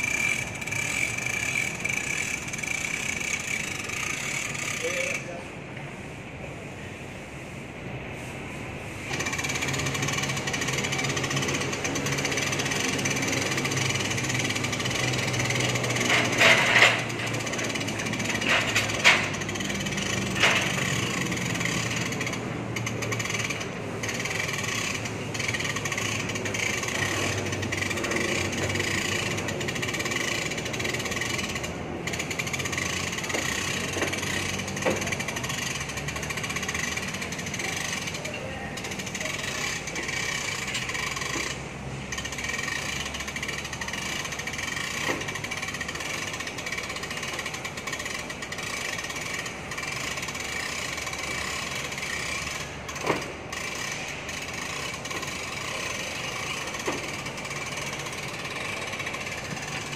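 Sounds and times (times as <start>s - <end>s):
harsh rattling drone: 0.0s - 7.5s, 8.5s - 59.9s
hoist motor running: 0.0s - 59.9s
sharp metal clanks: 9.2s - 41.6s.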